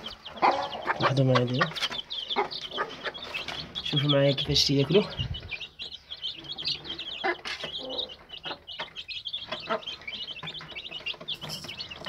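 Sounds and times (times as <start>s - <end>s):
chicks peeping: 0.0s - 12.0s
beaks tapping on tray: 6.6s - 12.0s.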